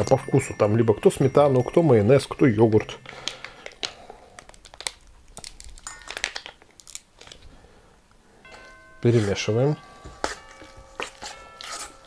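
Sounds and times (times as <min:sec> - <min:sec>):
plastic packaging crinkling: 0:02.8 - 0:07.5.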